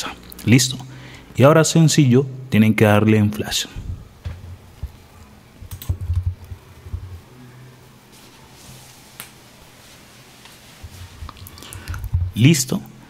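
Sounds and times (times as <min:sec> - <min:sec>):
low room hum: 0:00.0 - 0:13.0
computer mouse clicks: 0:05.7 - 0:06.2.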